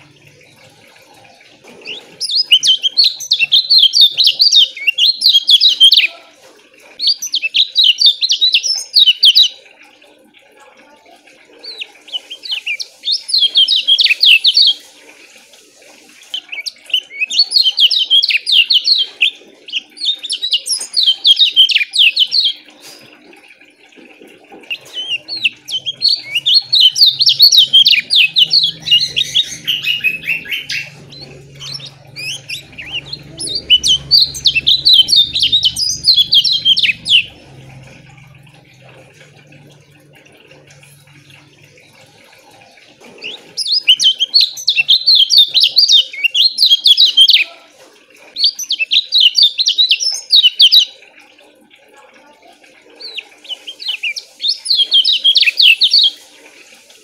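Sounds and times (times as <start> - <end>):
bird chirping rapidly: 1.8 - 6.0, 24.7 - 38.8, 53.0 - 56.2.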